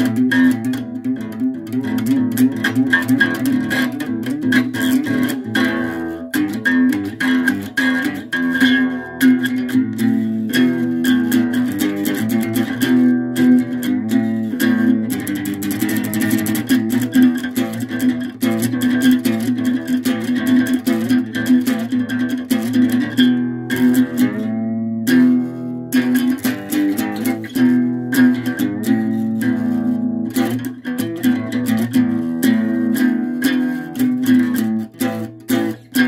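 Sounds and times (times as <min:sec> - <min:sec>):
plucked guitar notes: 0:00.0 - 0:36.0.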